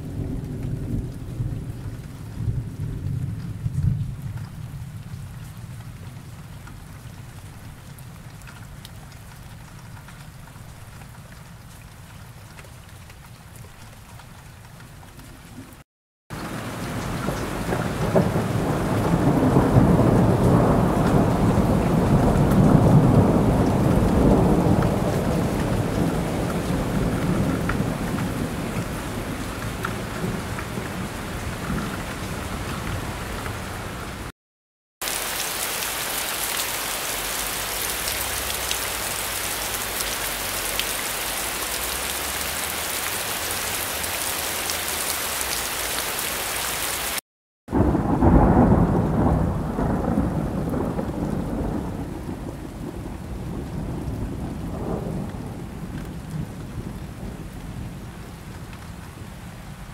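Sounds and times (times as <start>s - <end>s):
heavy rain: 0.0s - 34.3s, 35.0s - 59.9s
thunder rumbling: 16.4s - 34.3s, 47.7s - 58.4s.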